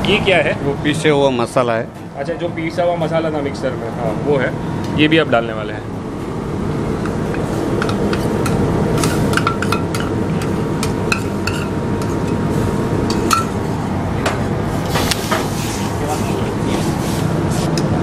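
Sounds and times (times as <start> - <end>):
kitchen noise drone: 0.0 - 18.0
spoon scraping steel bowl: 7.4 - 12.4.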